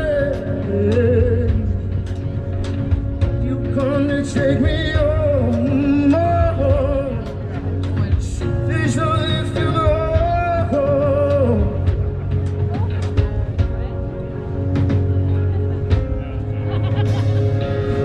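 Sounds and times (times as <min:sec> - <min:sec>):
bass: 0:00.0 - 0:18.0
strummed guitars: 0:00.0 - 0:18.0.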